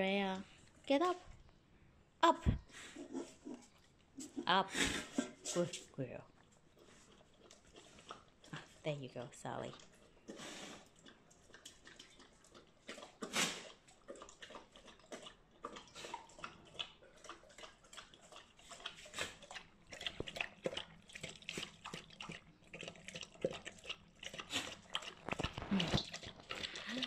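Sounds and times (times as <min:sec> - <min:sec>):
dog lapping water from metal bowl: 0:06.6 - 0:27.0.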